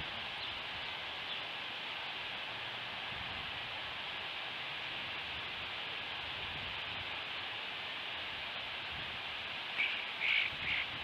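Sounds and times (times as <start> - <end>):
wind hiss: 0.0 - 11.0
bird calls: 9.8 - 11.0.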